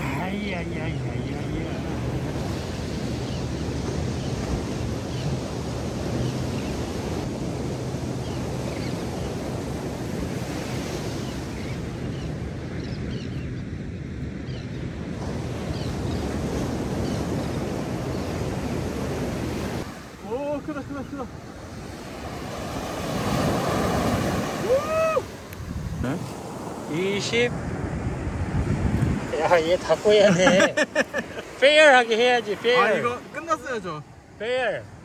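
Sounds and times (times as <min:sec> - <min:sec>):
ocean surf breaking: 0:00.0 - 0:12.0, 0:15.1 - 0:35.0
wind buffeting microphone: 0:27.4 - 0:29.9.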